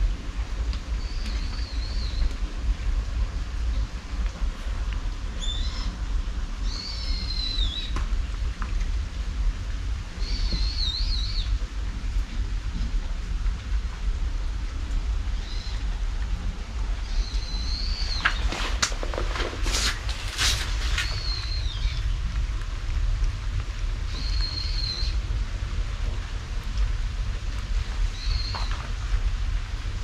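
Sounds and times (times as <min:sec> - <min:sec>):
steady rain: 0:00.0 - 0:30.0
sharp clicks and rustles: 0:18.1 - 0:21.6.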